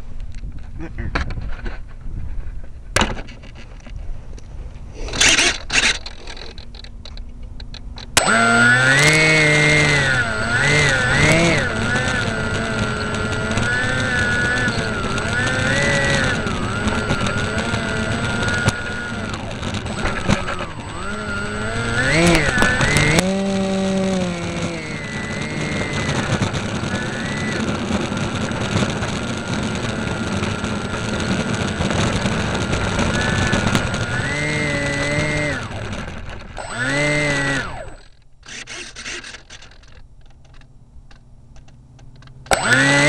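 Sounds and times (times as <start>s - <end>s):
clicks and rustles: 0.2s - 8.4s, 24.6s - 42.8s
model plane motor running: 5.0s - 6.8s, 8.1s - 40.6s, 42.4s - 43.0s.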